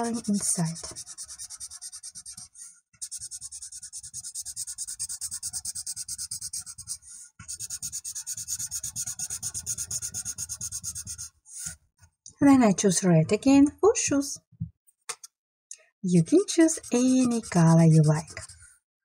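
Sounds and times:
marker scribbling on paper: 0:00.0 - 0:11.7, 0:16.2 - 0:18.7.

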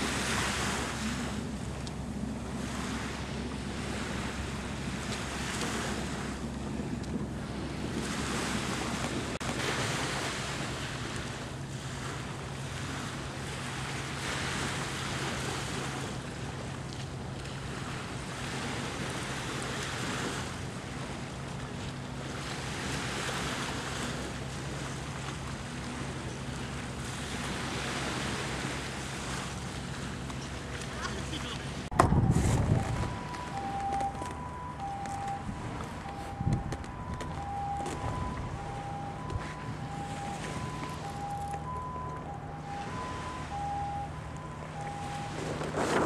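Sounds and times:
small waves washing at shore: 0:00.0 - 0:46.0
wind on the microphone: 0:31.9 - 0:39.6.

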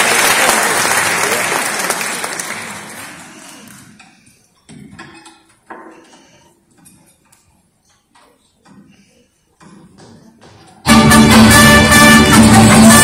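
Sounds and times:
audience applause: 0:00.0 - 0:03.8
faint instrument notes: 0:10.8 - 0:13.0.

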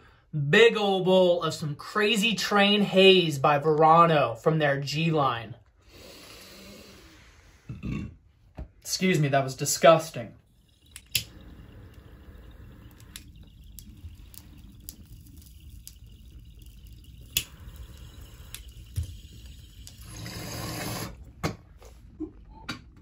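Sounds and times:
bong water bubbling: 0:09.8 - 0:22.9
lighter clicks: 0:17.2 - 0:18.8.

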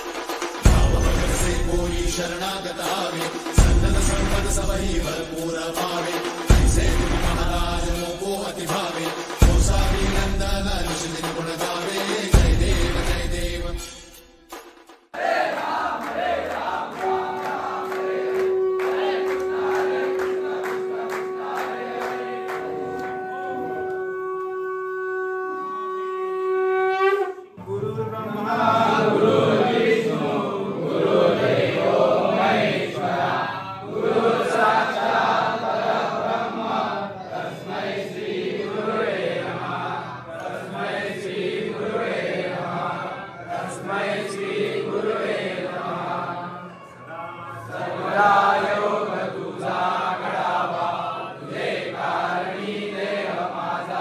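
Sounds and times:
crowd chanting: 0:00.0 - 0:13.8, 0:15.1 - 0:24.0, 0:28.1 - 0:54.0
conch shell blown: 0:16.9 - 0:28.5, 0:46.4 - 0:47.8.

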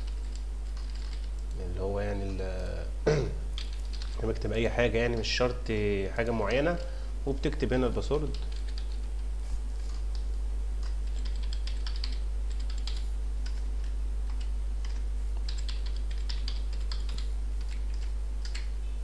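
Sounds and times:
typing on a keyboard: 0:00.0 - 0:01.4, 0:03.6 - 0:04.5, 0:08.3 - 0:09.1, 0:10.1 - 0:18.7
steady low hum: 0:00.0 - 0:19.0.

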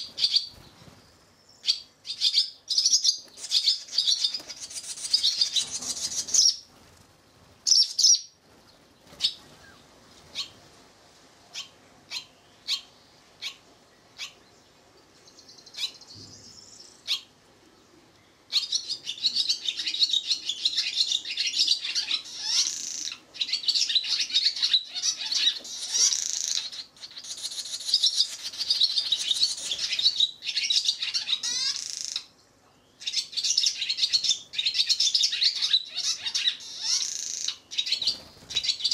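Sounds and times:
swallow chicks chirping and twittering: 0:00.0 - 0:10.6, 0:18.5 - 0:32.3, 0:32.9 - 0:38.9.

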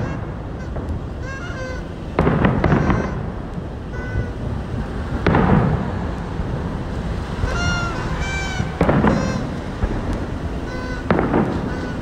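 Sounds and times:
short high-pitched cries: 0:00.0 - 0:04.4, 0:07.3 - 0:09.7, 0:10.5 - 0:12.0
firework bangs: 0:00.0 - 0:12.0
fireworks rumble: 0:00.0 - 0:12.0.

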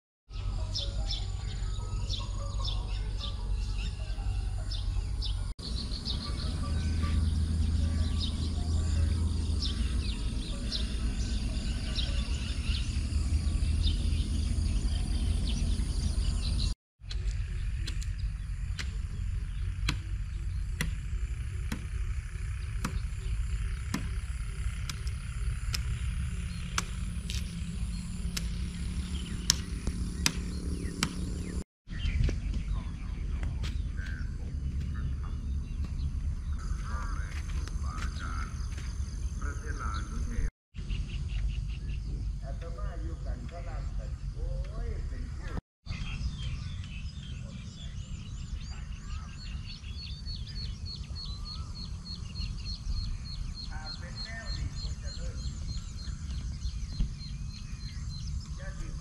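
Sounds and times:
birds chirping: 0:00.3 - 0:59.0
steady low rumble: 0:00.3 - 0:59.0
sharp ticks and calls: 0:05.7 - 0:31.6.

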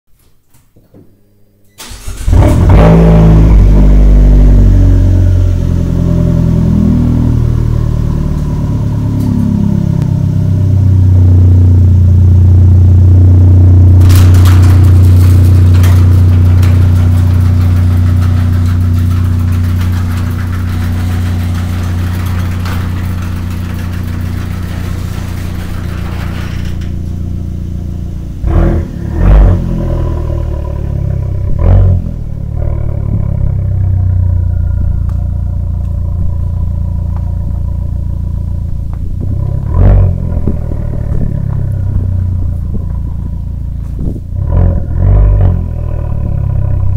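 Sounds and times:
car engine starting and idling: 0:01.8 - 0:46.9
loud bumps: 0:13.1 - 0:46.9.

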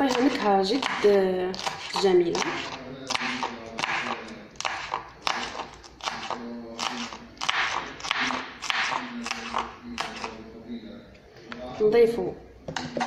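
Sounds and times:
knife chopping on wooden board: 0:00.0 - 0:10.4.

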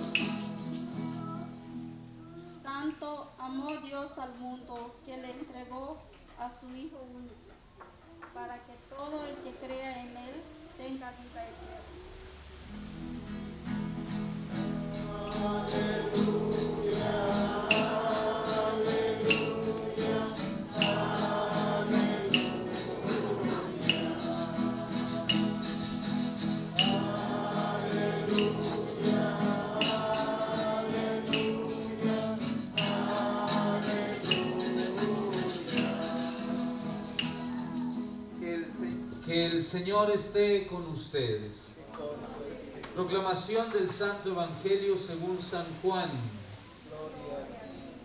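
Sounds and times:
church song singing: 0:00.0 - 0:01.4, 0:12.8 - 0:38.4
shaker keeping a beat: 0:00.0 - 0:02.7, 0:12.8 - 0:38.3.

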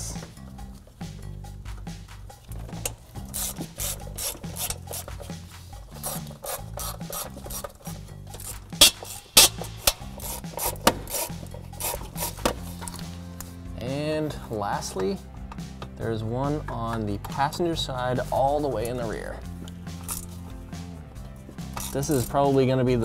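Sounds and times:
ratchet clicking: 0:02.4 - 0:13.0, 0:21.7 - 0:22.3.

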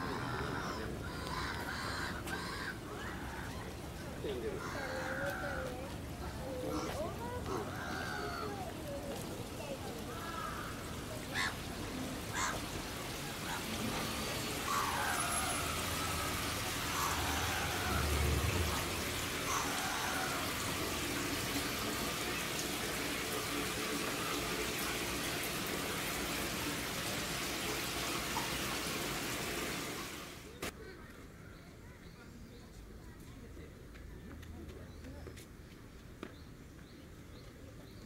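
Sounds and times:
water falling into a pool: 0:05.0 - 0:30.8.

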